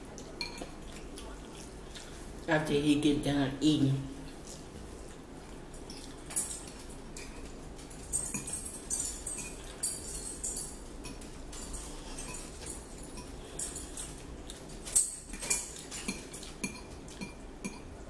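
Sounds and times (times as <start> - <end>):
fork clinking on ceramic bowl: 0.4 - 0.8, 8.0 - 14.0, 14.9 - 17.9.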